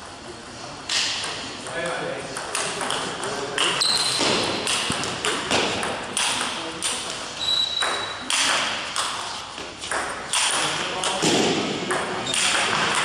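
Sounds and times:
ping pong ball clicks: 0:02.4 - 0:03.8, 0:04.6 - 0:07.2, 0:07.8 - 0:09.2, 0:09.9 - 0:11.2
shoe squeak: 0:03.7 - 0:04.7, 0:07.4 - 0:08.2.

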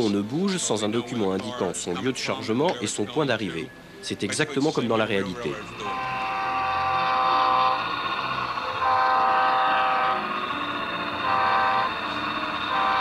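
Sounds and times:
model train chord horn: 0:05.5 - 0:13.0.

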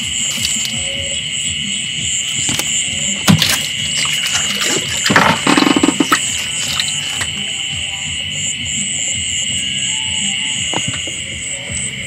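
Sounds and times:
rapid splashing and rattling: 0:00.0 - 0:01.2, 0:01.9 - 0:07.6
night insects chorus: 0:00.0 - 0:12.0.

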